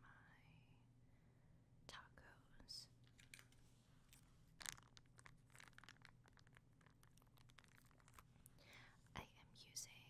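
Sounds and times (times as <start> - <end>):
faint crinkling and crackling: 2.7 - 10.0.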